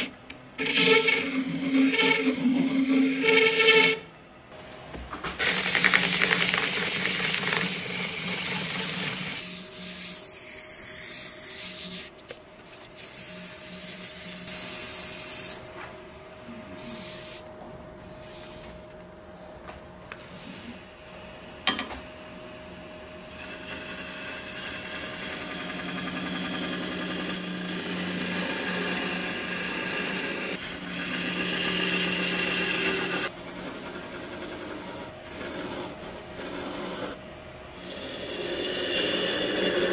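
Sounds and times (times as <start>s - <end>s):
turning tool cutting wood: 0.0s - 4.0s, 23.3s - 39.9s
wood lathe humming: 0.0s - 4.0s, 23.3s - 39.9s.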